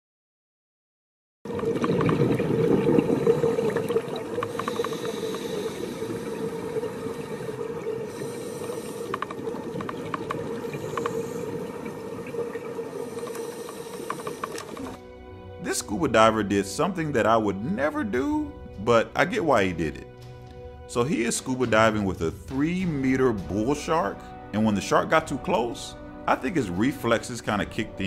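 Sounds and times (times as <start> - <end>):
underwater rushing water: 1.5 - 15.1.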